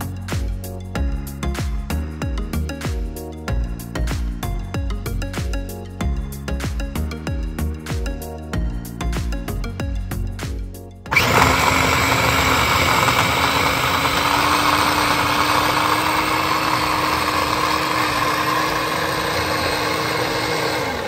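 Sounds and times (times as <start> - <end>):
food chopper motor running: 11.1 - 21.0.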